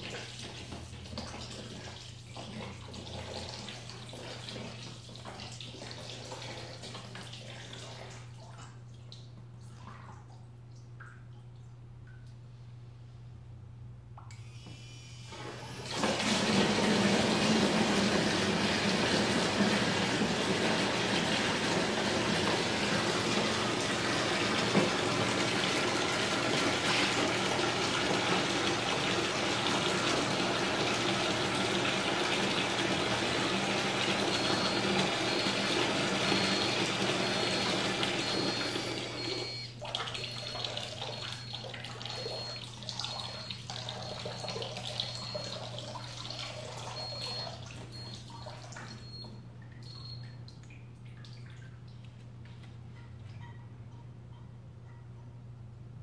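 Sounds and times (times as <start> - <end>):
high electronic beeping: 36.3 - 49.3.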